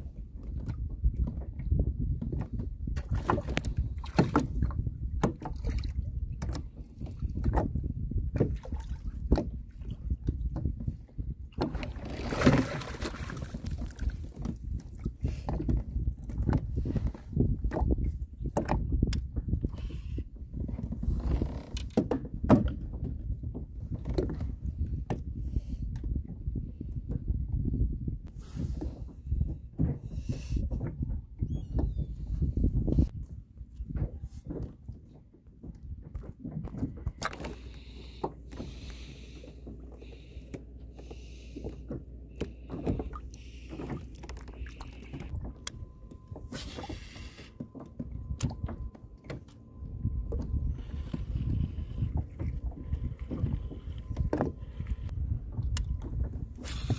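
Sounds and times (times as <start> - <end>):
water sloshing and splashing: 0.0 - 25.4, 28.2 - 56.9
fishing gear knocks and creaks: 20.5 - 25.3, 33.9 - 56.9
low steady rumble: 36.9 - 56.9.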